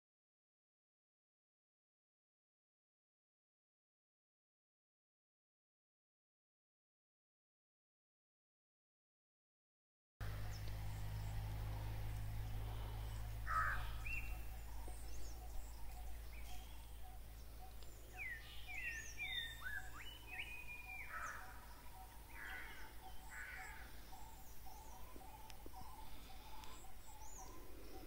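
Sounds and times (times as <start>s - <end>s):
faint high bird chirps: 10.2s - 28.0s
harsh bird calls: 10.2s - 28.0s
low rumble: 10.2s - 28.0s
whistled bird notes: 10.4s - 28.0s.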